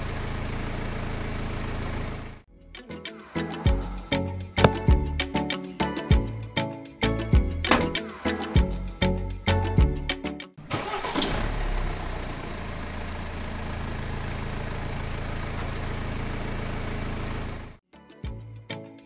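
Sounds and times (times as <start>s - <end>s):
rhythmic background music: 2.8s - 10.6s, 18.0s - 19.0s.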